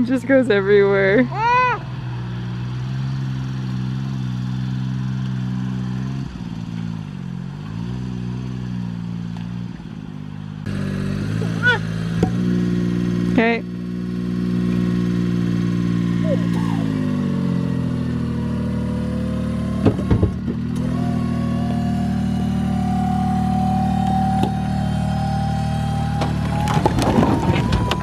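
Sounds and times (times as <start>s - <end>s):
truck engine running: 0.0s - 28.0s
clunks: 19.8s - 21.0s, 24.0s - 24.6s, 25.9s - 28.0s
hydraulic whine rising in pitch: 20.7s - 28.0s.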